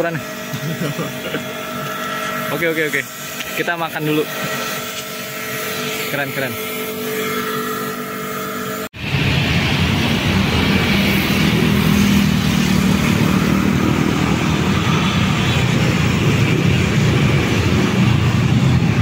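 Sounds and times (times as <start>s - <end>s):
road traffic passing: 8.9s - 19.0s.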